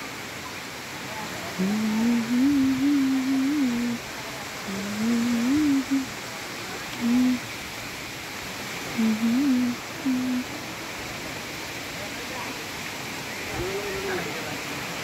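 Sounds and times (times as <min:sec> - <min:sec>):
steady background hiss: 0:00.0 - 0:15.0
person humming: 0:01.6 - 0:04.0, 0:04.7 - 0:06.1, 0:07.0 - 0:07.4, 0:09.0 - 0:10.5.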